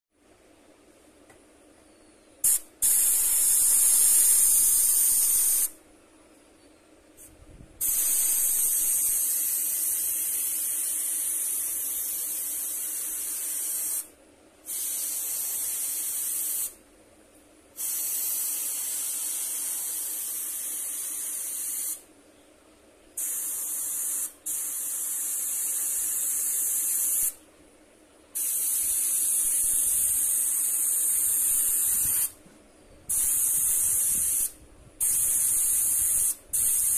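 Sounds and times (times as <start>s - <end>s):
airbrush spraying hiss: 2.4s - 5.8s, 7.2s - 16.8s, 17.7s - 22.1s, 23.2s - 27.4s, 28.4s - 32.4s, 33.1s - 36.9s.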